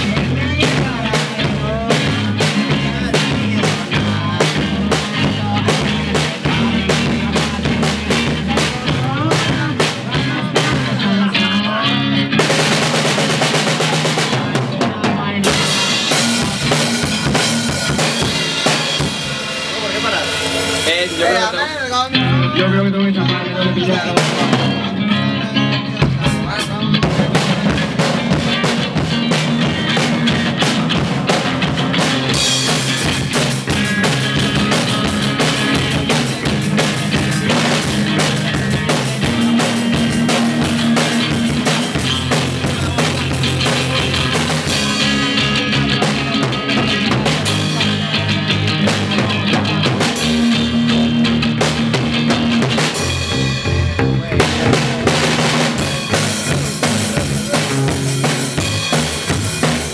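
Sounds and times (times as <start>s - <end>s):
amplified bass guitar: 0.0s - 59.9s
drum kit playing: 0.0s - 59.9s
electric guitar notes: 0.0s - 59.9s.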